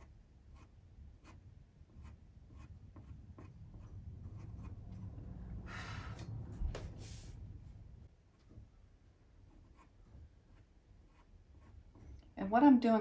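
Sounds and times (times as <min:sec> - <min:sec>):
pastel scratching on paper: 0:09.6 - 0:12.1.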